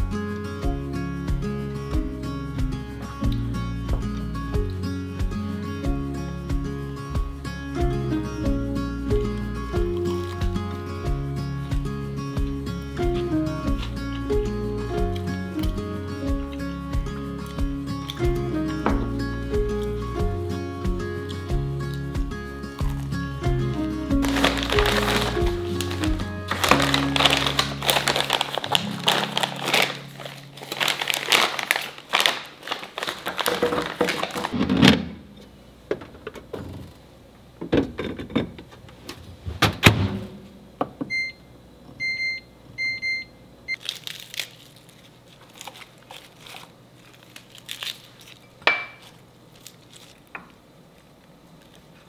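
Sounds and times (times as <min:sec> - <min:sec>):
soft background music: 0:00.0 - 0:31.9
oven control panel beeps: 0:41.0 - 0:43.8.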